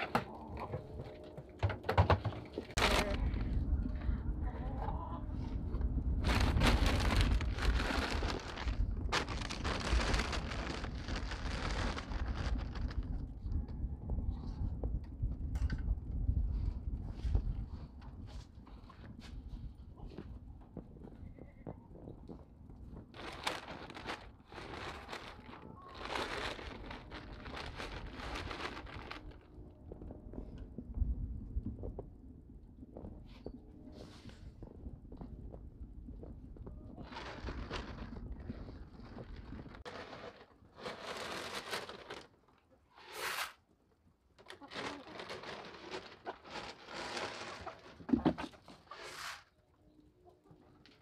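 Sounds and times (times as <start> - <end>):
feed sack crinkling and rustling: 2.7 - 3.4, 6.1 - 13.2, 23.0 - 29.5, 37.0 - 43.5, 44.4 - 49.1
pellets rattling: 6.2 - 13.0, 23.2 - 29.4, 39.2 - 42.4, 44.5 - 48.1
footsteps crunching on straw: 6.3 - 13.0.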